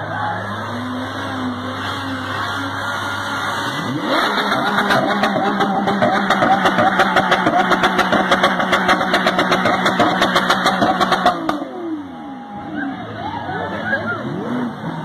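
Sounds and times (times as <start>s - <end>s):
car engine revving: 0.0s - 15.0s.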